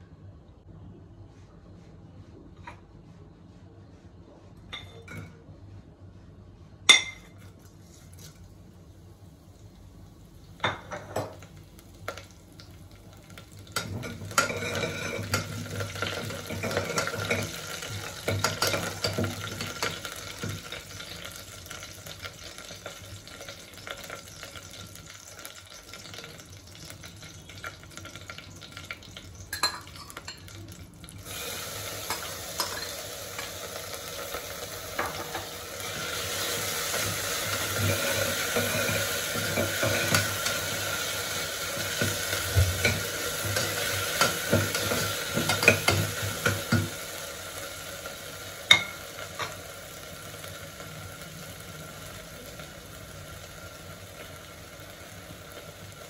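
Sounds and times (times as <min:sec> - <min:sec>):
hot oil sizzling in a pot: 0:09.3 - 0:56.0.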